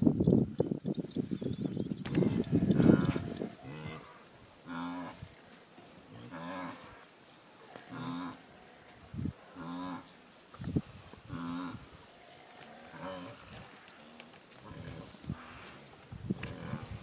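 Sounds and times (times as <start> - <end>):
elephant calf calling: 2.0 - 5.3.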